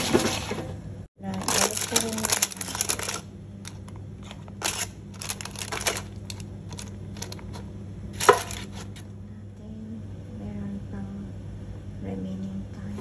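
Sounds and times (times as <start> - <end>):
low hum: 0.0 - 13.0
paper rustling: 1.4 - 3.2, 4.2 - 7.6, 8.2 - 9.1.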